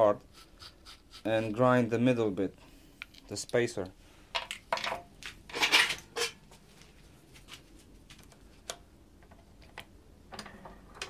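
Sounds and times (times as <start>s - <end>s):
metal parts clinking: 4.4s - 6.4s
metal scraping clatter: 5.5s - 6.4s.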